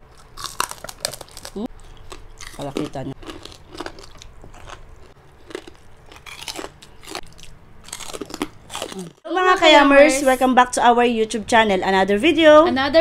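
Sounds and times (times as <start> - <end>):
crunchy chewing: 0.0 - 9.2.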